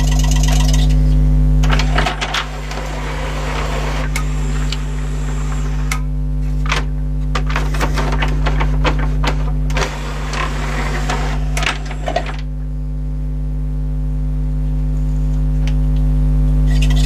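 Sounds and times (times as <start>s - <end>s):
steady low hum: 0.1s - 17.0s
cd tray clicking and rattling: 1.6s - 6.0s, 6.6s - 12.5s.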